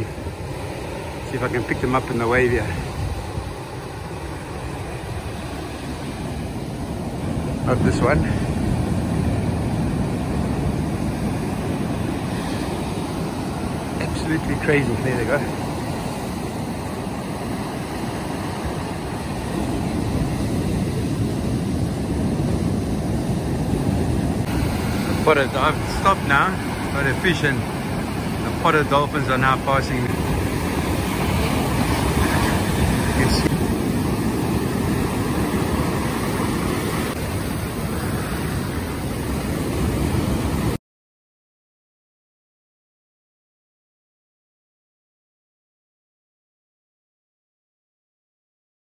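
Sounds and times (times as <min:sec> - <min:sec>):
surf breaking on shore: 0:00.0 - 0:40.8
wind noise on microphone: 0:02.6 - 0:14.0, 0:15.5 - 0:28.6, 0:29.6 - 0:40.8.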